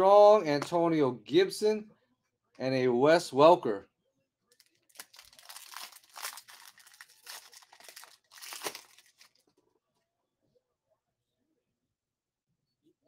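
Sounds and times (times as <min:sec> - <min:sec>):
foil pack tearing and crinkling: 0:04.9 - 0:09.4.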